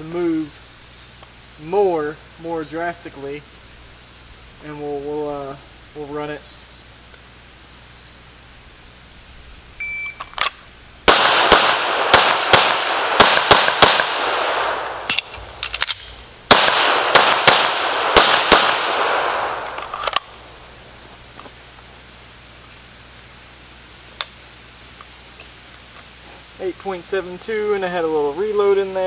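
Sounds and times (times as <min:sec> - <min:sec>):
shot timer beep: 0:09.8 - 0:10.3
pistol shots echoing: 0:11.1 - 0:20.4
magazine reload clicks: 0:13.4 - 0:17.7, 0:18.3 - 0:20.3.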